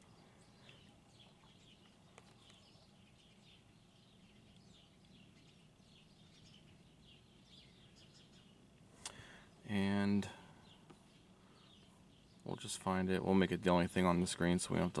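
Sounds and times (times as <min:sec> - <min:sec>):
faint birds chirping: 0:00.0 - 0:15.0.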